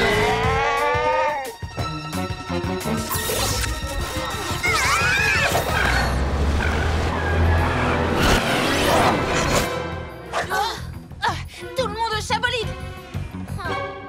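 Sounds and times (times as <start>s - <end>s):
cartoon action music: 0.0s - 10.8s.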